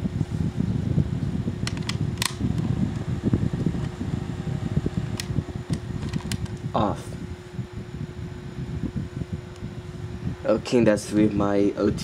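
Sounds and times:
fan motor hum and air rush: 0:00.0 - 0:12.0
sharp clicks: 0:01.7 - 0:02.4.

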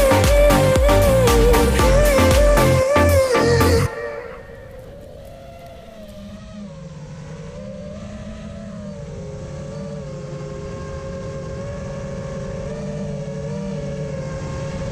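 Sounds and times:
drone motors whining: 0:00.0 - 0:14.9.

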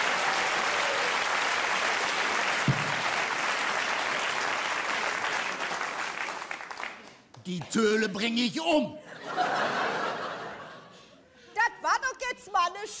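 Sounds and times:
audience applauding: 0:00.0 - 0:08.2
low thump: 0:02.7 - 0:03.1.

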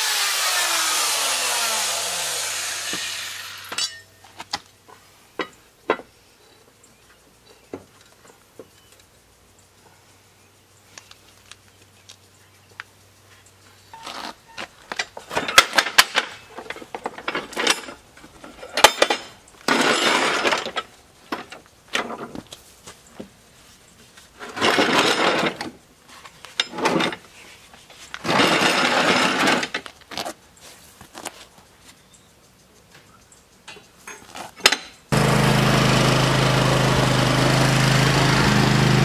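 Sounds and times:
metal tools clanking: 0:03.6 - 0:04.3, 0:13.9 - 0:22.3, 0:33.7 - 0:35.0.

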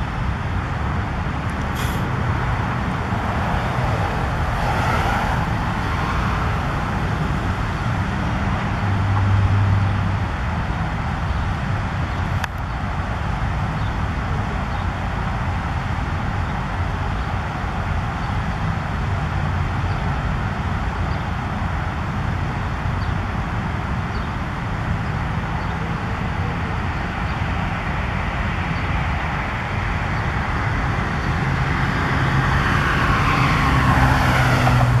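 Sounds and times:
road traffic noise: 0:00.0 - 0:35.0
vehicle passing: 0:01.6 - 0:10.3, 0:25.8 - 0:35.0.

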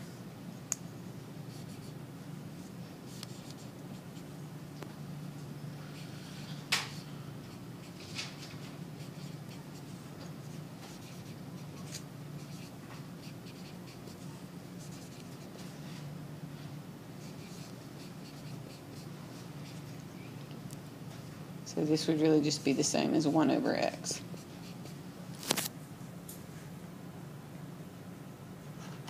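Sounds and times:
steady low hum: 0:00.0 - 0:29.0
stylus scratching on screen: 0:07.8 - 0:15.7, 0:17.2 - 0:20.0.

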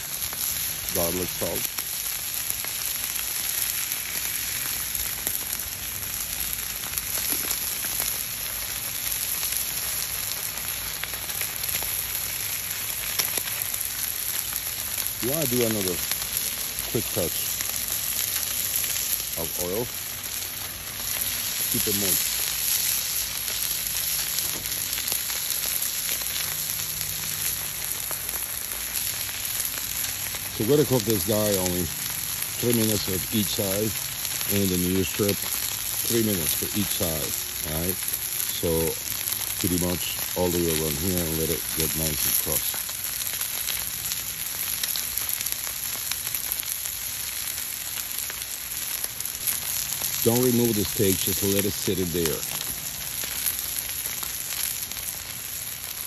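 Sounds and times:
steak sizzling on grill: 0:00.0 - 0:56.0
oil spattering pops: 0:07.1 - 0:08.1.

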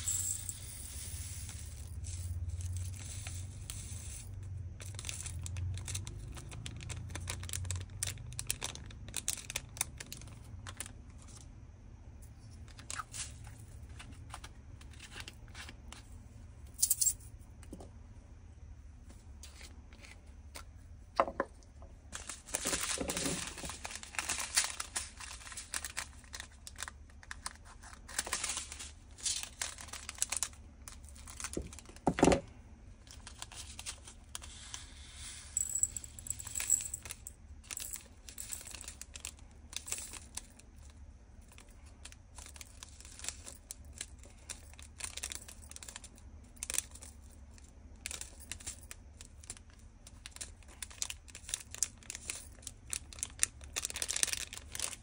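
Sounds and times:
tiny beads clicking and rattling: 0:00.0 - 0:11.5, 0:33.0 - 0:55.0
plastic bags crinkling and tearing: 0:04.8 - 0:11.4, 0:12.7 - 0:15.6, 0:22.2 - 0:32.2, 0:33.0 - 0:34.7, 0:41.6 - 0:47.0, 0:48.0 - 0:55.0.

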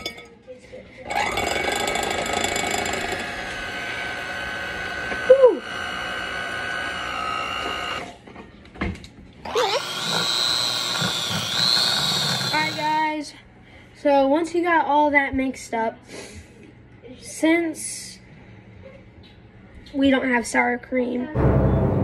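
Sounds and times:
electric hand mixer running: 0:01.1 - 0:08.1, 0:09.5 - 0:13.0
loud voice-like whoop: 0:05.3 - 0:05.6.

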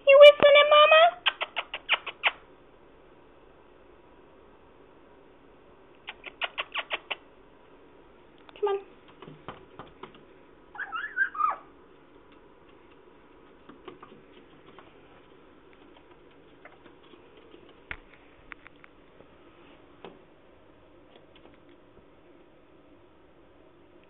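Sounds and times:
parrot whistling: 0:10.8 - 0:11.7.

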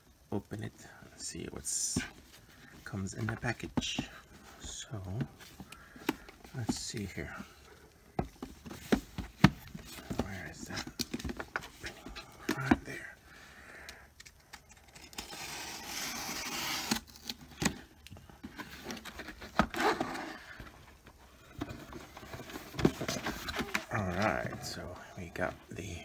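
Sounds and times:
cardboard scraping and rustling: 0:01.8 - 0:07.6, 0:08.2 - 0:12.9, 0:15.1 - 0:26.0
cardboard tearing: 0:14.9 - 0:17.8, 0:18.6 - 0:20.6.

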